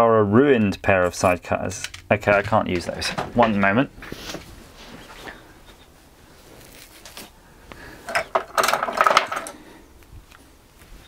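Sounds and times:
metal hand tools clinking: 8.1s - 9.6s.

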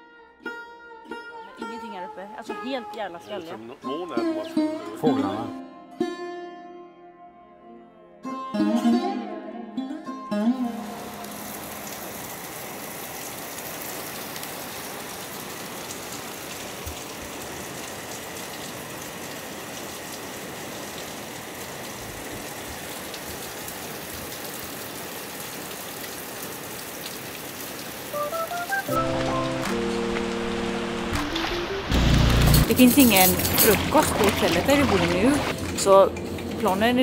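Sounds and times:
steady rain hiss: 10.8s - 35.5s.

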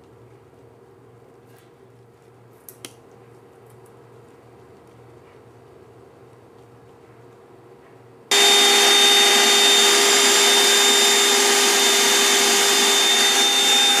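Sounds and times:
handheld vacuum motor whine: 8.3s - 14.0s.

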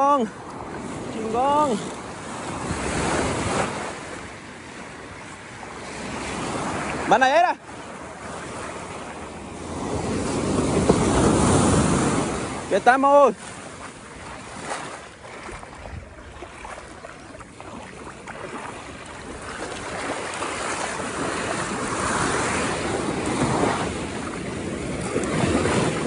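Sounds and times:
ocean waves rushing: 0.0s - 26.0s
wind buffeting microphone: 8.1s - 12.7s, 13.4s - 26.0s.

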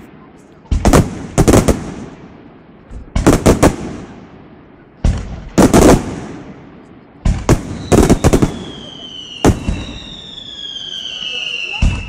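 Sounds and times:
high whistles gliding down: 7.8s - 12.0s.

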